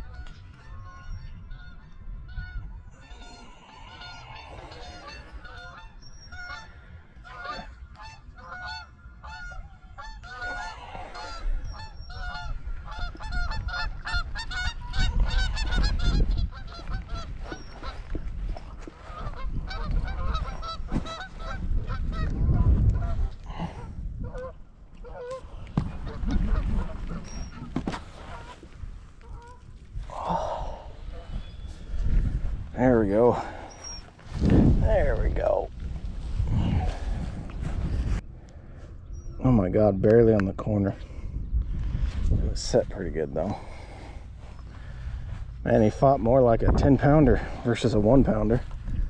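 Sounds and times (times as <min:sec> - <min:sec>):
flock of birds honking: 0:00.0 - 0:34.3
low rumbles on microphone: 0:10.8 - 0:39.4.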